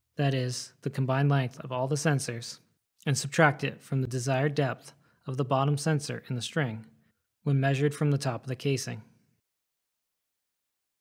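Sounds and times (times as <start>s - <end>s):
narrator speaking: 0.2s - 6.9s, 7.5s - 9.2s.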